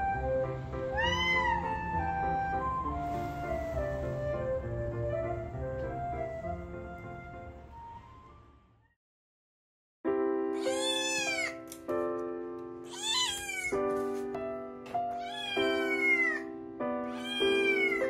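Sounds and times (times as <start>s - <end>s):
light background music: 0.0s - 8.7s, 10.3s - 18.0s
cat meowing: 0.9s - 1.9s, 10.6s - 11.7s, 12.9s - 13.8s, 15.1s - 16.5s, 17.1s - 18.0s.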